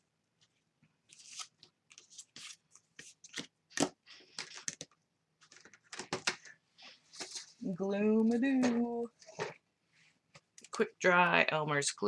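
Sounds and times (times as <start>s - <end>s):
paper rustling on a table: 0.4s - 7.6s.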